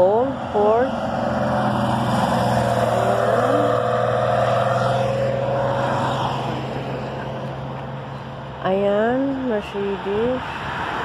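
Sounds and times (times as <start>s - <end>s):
car engine driving past: 0.0s - 8.6s.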